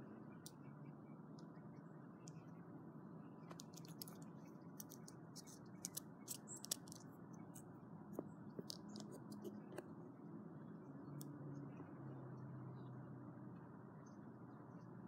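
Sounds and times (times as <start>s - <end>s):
fingers clicking on earbud: 3.5s - 4.2s, 4.8s - 7.0s, 8.6s - 9.8s.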